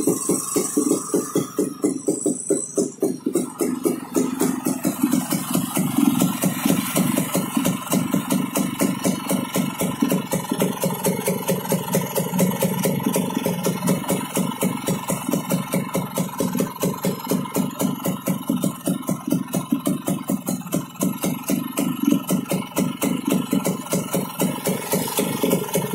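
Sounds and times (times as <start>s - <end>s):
motorcycle engine idling: 0.0s - 25.9s.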